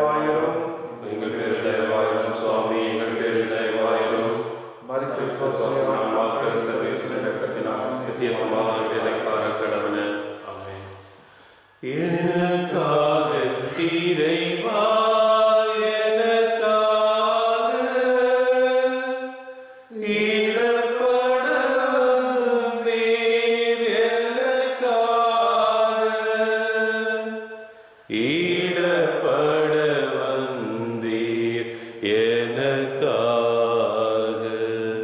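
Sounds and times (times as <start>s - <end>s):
higher voice singing a hymn: 0.0s - 10.9s, 11.7s - 35.0s
lower voice singing a hymn: 0.0s - 10.9s, 11.8s - 35.0s.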